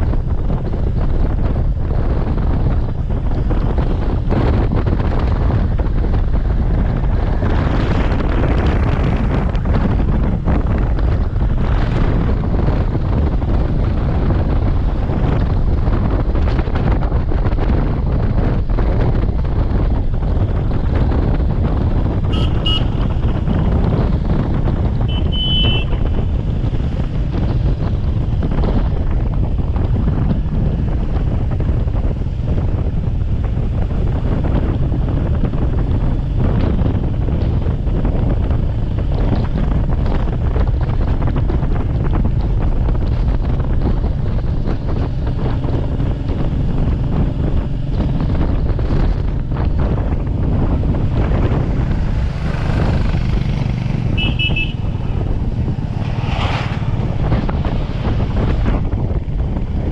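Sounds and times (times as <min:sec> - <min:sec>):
motorcycle engine and road rumble: 0:00.0 - 0:59.9
wind rushing on microphone: 0:00.0 - 0:59.9
horn beep: 0:22.3 - 0:23.1, 0:25.1 - 0:26.0, 0:54.1 - 0:55.1.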